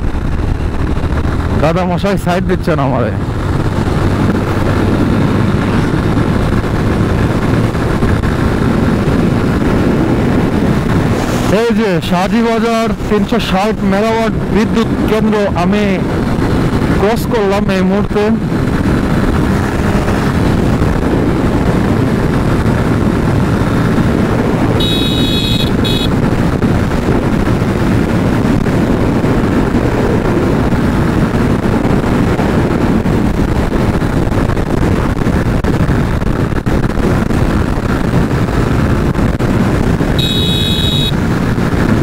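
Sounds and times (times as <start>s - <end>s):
motorcycle engine hum: 0.0s - 42.0s
wind rushing over microphone: 0.0s - 42.0s
short high beep: 24.8s - 26.1s, 40.2s - 41.1s.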